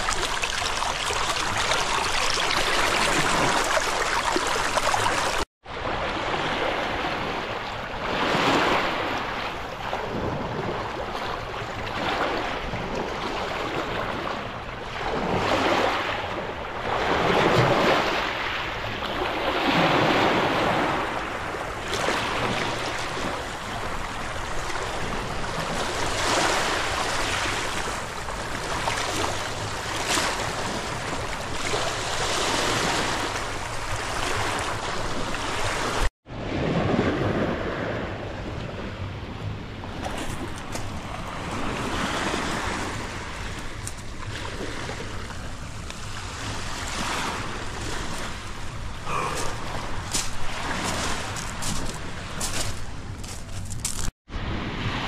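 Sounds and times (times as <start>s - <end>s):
waves breaking on shore: 0.0s - 55.0s.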